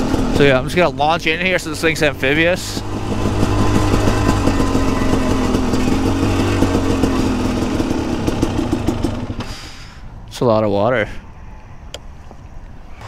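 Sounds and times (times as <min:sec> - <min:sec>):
two-stroke motorcycle engine: 0:00.0 - 0:09.7.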